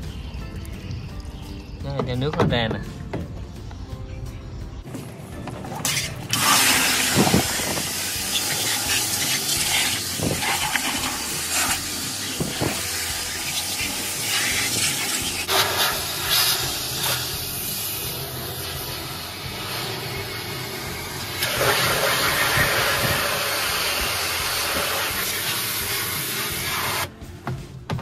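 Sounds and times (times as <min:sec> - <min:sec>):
high-pressure water spray hissing: 0:05.9 - 0:27.1.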